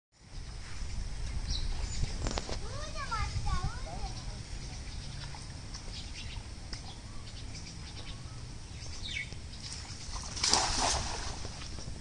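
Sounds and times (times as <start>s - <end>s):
birds chirping: 0.2s - 10.4s
net splashing on water: 9.6s - 11.7s.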